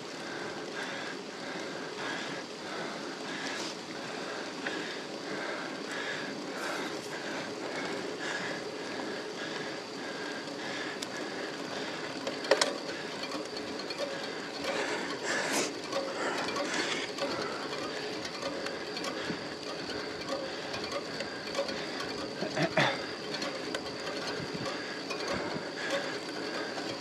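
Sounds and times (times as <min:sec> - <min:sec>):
rhythmic pedal stroke pulse: 0:00.0 - 0:27.0
bicycle click: 0:04.5 - 0:27.0
road and wind noise: 0:23.0 - 0:27.0.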